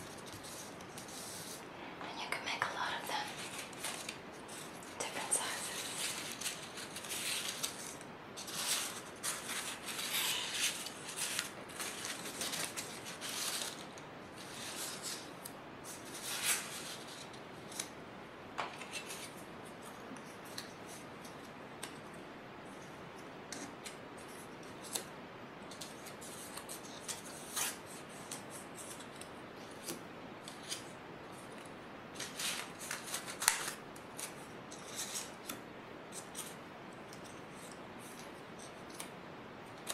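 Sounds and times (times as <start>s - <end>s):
paper cut-outs rustling: 0.0s - 1.6s, 2.8s - 18.0s, 25.7s - 39.9s.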